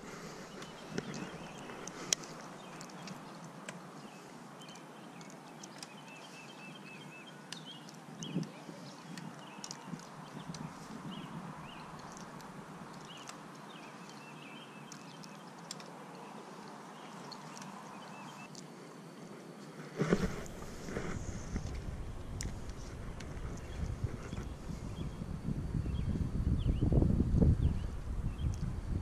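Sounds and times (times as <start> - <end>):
rumbling rustle on microphone: 0.0 - 4.4, 16.3 - 29.0.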